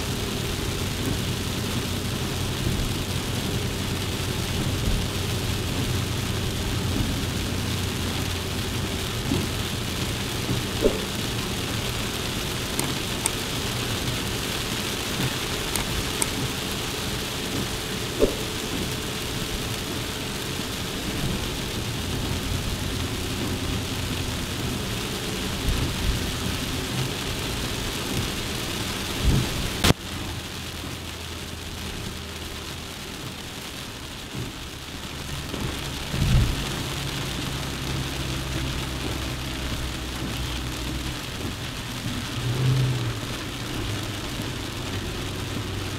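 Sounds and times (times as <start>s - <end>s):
car engine running: 0.0s - 33.3s
rain or road noise hiss: 0.0s - 45.9s.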